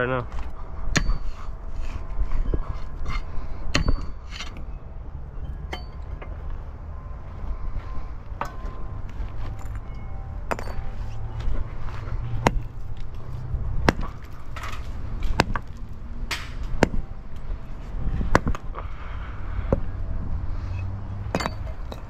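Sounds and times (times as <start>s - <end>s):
sledgehammer striking concrete: 0.9s - 1.3s, 3.7s - 4.6s, 12.4s - 12.8s, 13.8s - 17.0s, 18.2s - 18.6s, 21.3s - 22.0s
concrete chunks clinking: 9.5s - 11.0s, 13.9s - 16.0s, 21.3s - 22.0s.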